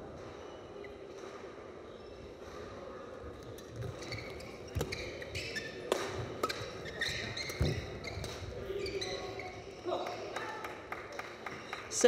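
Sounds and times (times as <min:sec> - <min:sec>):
shoes squeaking on court: 0:03.3 - 0:10.3
racket hitting shuttlecock: 0:05.9 - 0:08.4.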